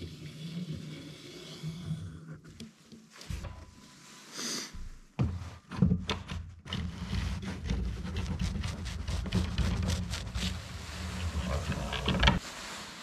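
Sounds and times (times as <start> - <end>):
wooden strips clicking and knocking: 11.2 - 12.4.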